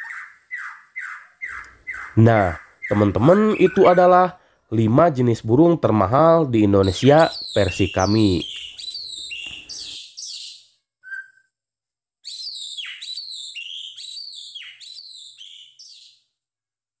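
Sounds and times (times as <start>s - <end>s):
bird singing whistled phrases: 0.0s - 4.0s, 6.8s - 11.6s, 12.2s - 16.2s.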